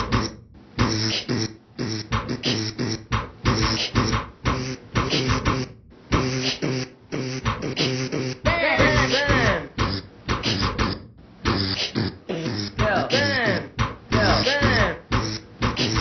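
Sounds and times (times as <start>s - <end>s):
beatboxed drum hits: 0.0s - 16.0s
hummed bass notes: 7.2s - 16.0s
high wavering vocal line: 11.5s - 16.0s.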